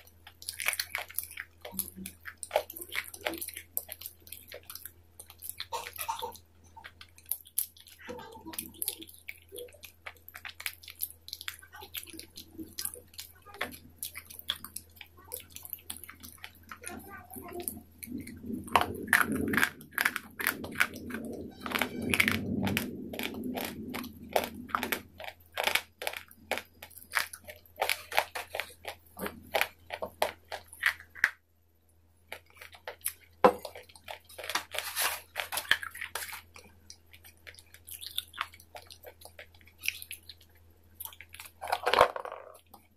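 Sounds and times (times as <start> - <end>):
chewing and crunching food: 0.0 - 42.9.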